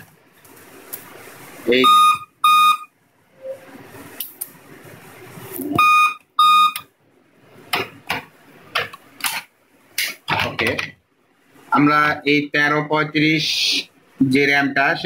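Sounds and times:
short electronic beeps: 1.8 - 3.6, 5.7 - 6.8.

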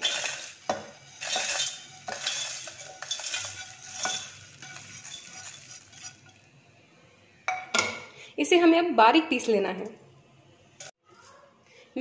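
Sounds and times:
seeds falling on metal: 0.0 - 6.2.

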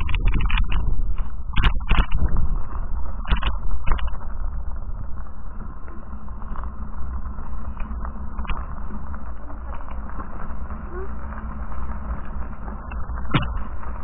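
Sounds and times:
bicycle rolling over gravel: 0.0 - 14.0
wind buffeting microphone: 0.0 - 14.0
bike knocking over bumps: 13.0 - 14.0.

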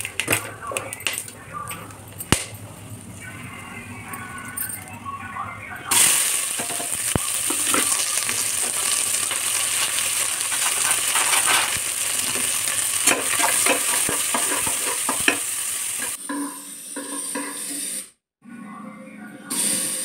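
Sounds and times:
onions sizzling in hot oil: 5.9 - 18.0
metal spatula scraping a pot: 10.4 - 11.8, 13.1 - 15.4, 16.0 - 18.0.

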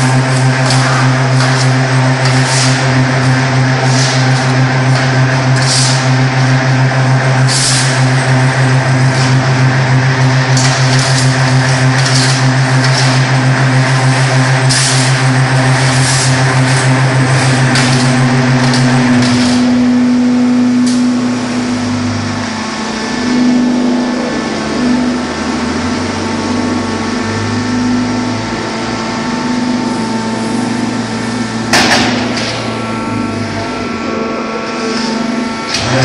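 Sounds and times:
machine motor hum: 0.0 - 36.0
loud clatter: 7.4 - 19.8, 31.7 - 33.0.

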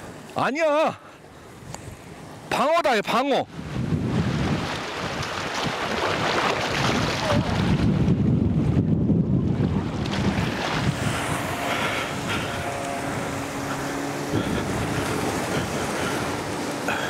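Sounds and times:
motorboat engine: 0.0 - 17.0
surf washing against rocks: 2.4 - 17.0
wind buffeting microphone: 3.5 - 17.0.

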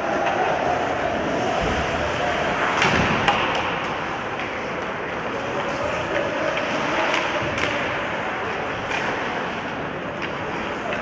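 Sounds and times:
hockey sticks and puck clacking: 0.0 - 1.9, 2.5 - 11.0
faint voices: 0.0 - 11.0
skates scraping ice: 0.1 - 11.0.

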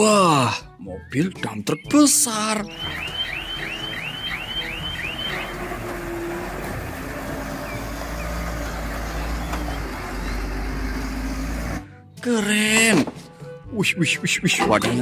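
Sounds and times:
electronic warning chirps: 2.6 - 5.7
diesel truck engine droning: 2.6 - 12.0.

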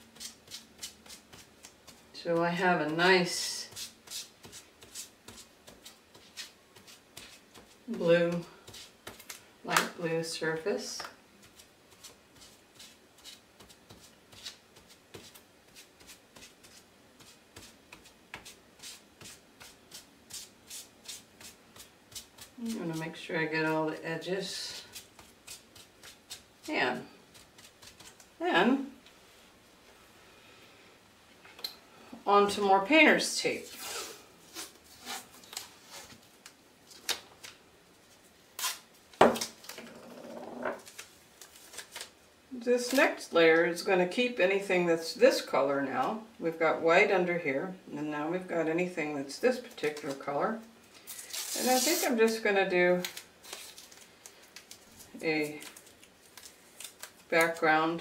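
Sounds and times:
paper towel dabbing and rubbing: 0.0 - 9.3, 11.4 - 28.4
tape ripping: 38.6 - 39.8, 51.0 - 52.2, 53.0 - 57.7.

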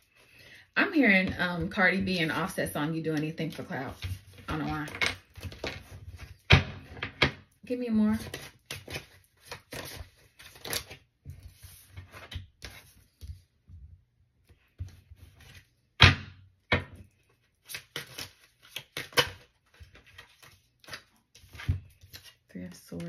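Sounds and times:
cards being shuffled: 8.2 - 13.4, 17.5 - 23.0.

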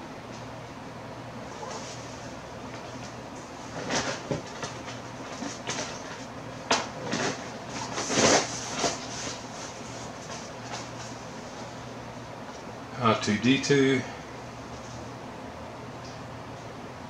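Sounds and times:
plastic packs rustling and knocking: 3.7 - 11.1.

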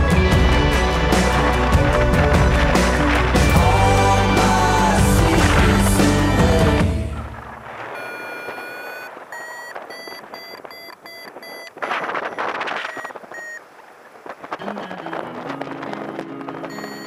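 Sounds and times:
variometer beeping: 8.0 - 13.6, 16.6 - 17.0.

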